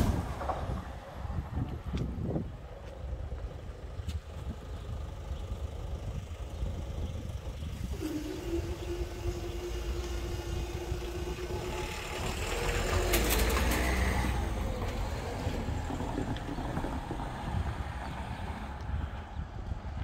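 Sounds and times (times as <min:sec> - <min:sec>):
low rumble: 0:00.0 - 0:20.0
barrier motors humming: 0:04.8 - 0:16.5
vehicle engine passing: 0:07.8 - 0:19.1.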